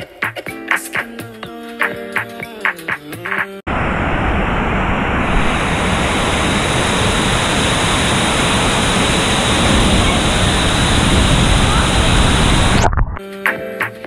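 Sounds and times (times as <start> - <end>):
hip-hop music: 0.0 - 3.6, 13.2 - 14.0
waterfall pouring into pool: 5.3 - 12.9.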